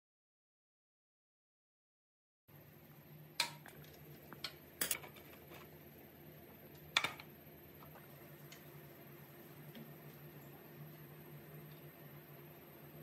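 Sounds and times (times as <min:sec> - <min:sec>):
faint steady hum: 0:02.5 - 0:13.0
tools clicking on metal parts: 0:04.8 - 0:05.2.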